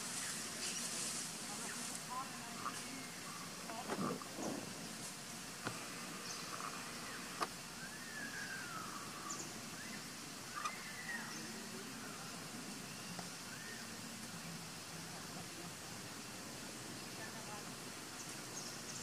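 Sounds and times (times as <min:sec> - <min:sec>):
tree canopy ambience: 0:00.0 - 0:19.0
whistle-like animal calls: 0:07.8 - 0:09.1.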